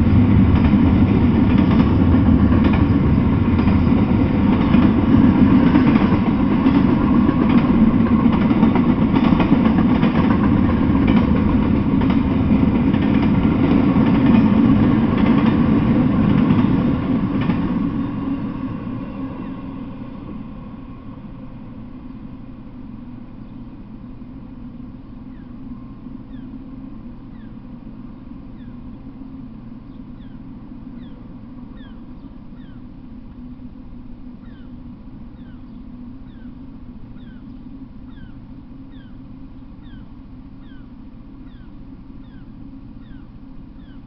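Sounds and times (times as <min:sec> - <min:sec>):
steady low rumble: 0:00.0 - 0:44.0
bird chirping: 0:25.2 - 0:26.6, 0:27.3 - 0:27.6, 0:28.5 - 0:29.1, 0:29.8 - 0:32.9, 0:34.4 - 0:44.0.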